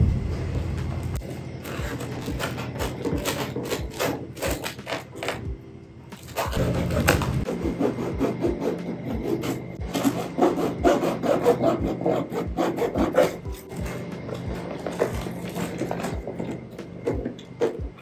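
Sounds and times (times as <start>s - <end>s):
angle grinder grinding floor: 0.0s - 5.5s, 6.1s - 17.9s.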